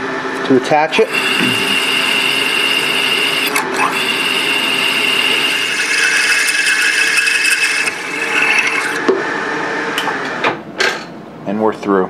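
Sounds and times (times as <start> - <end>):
drill grinding through metal: 0.9 - 9.1
sharp clicks: 2.4 - 4.0.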